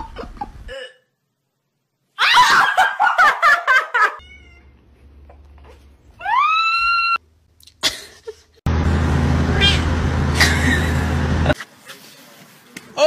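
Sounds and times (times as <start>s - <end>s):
laughter: 0.0s - 0.7s, 2.4s - 4.2s, 7.8s - 8.6s, 10.4s - 11.7s
cat meowing: 4.2s - 4.7s, 9.5s - 9.9s.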